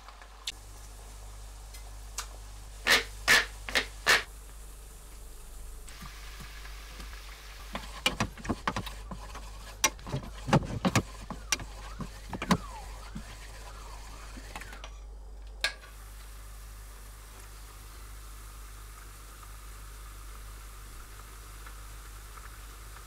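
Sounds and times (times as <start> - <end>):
sauce simmering in a frying pan: 16.0 - 23.0.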